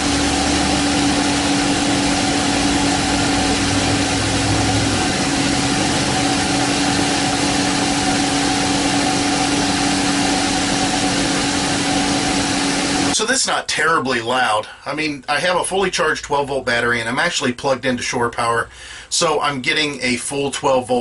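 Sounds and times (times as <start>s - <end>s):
low rumble: 0.0s - 9.2s
vent fan air rush: 0.0s - 13.2s
two-tone fan hum: 0.0s - 13.3s.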